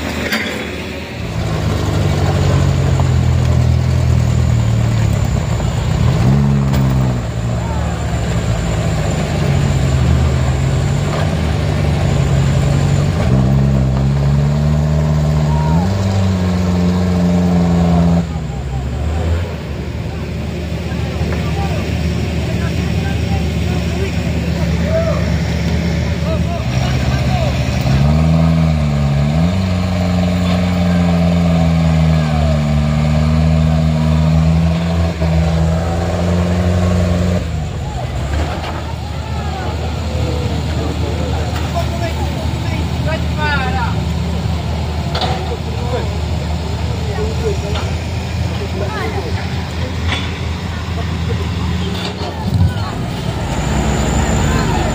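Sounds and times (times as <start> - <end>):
diesel truck engine under load: 0.0 - 54.9.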